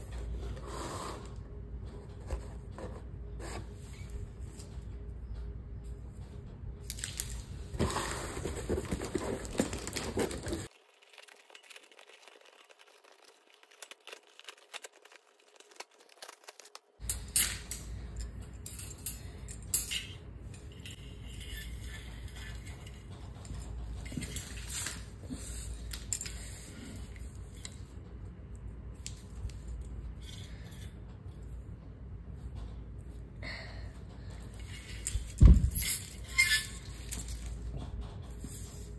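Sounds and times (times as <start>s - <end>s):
rustling against cardboard box: 7.8s - 10.7s.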